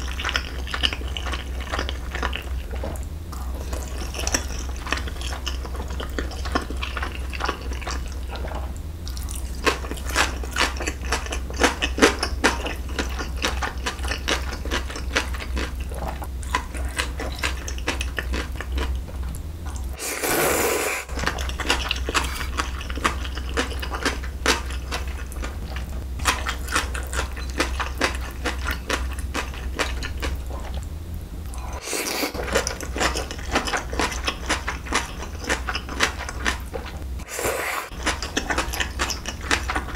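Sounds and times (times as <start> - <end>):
slurping noodles: 20.0 - 21.2, 31.5 - 33.8, 37.2 - 38.0
wet chewing with clicks: 37.9 - 39.9.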